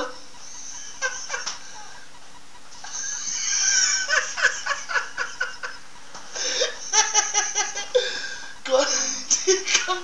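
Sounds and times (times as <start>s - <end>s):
person laughing: 0.6s - 2.0s, 2.8s - 10.0s.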